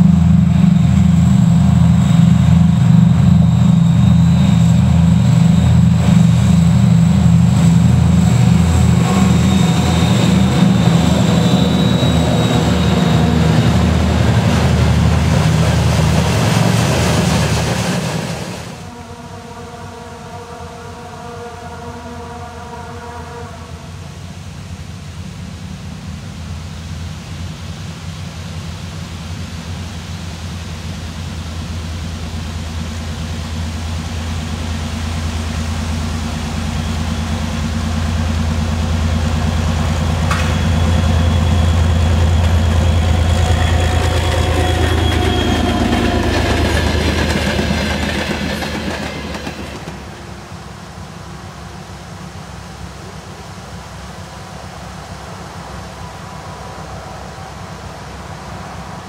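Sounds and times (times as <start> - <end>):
train wheel clatter: 0.0 - 18.9, 32.3 - 50.8
diesel locomotive engine drone: 0.0 - 59.0
thin high whine: 0.0 - 59.0.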